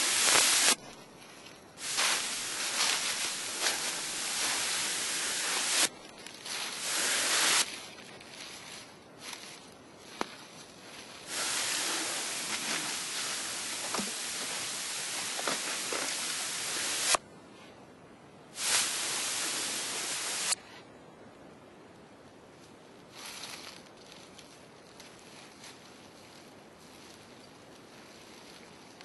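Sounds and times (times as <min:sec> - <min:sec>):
footsteps crunching dry leaves: 0:00.0 - 0:16.4.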